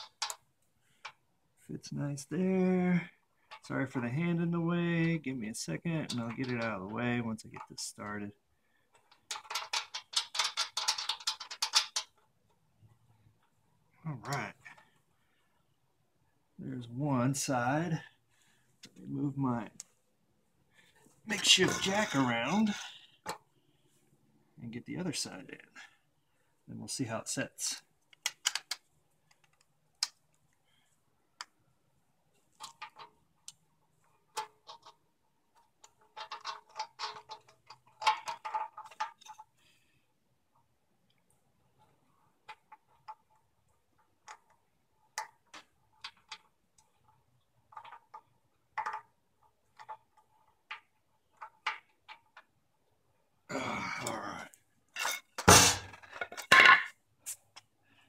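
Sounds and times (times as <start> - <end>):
plastic clicks: 0.0 - 0.4, 28.1 - 30.6
person grunting: 53.5 - 54.4.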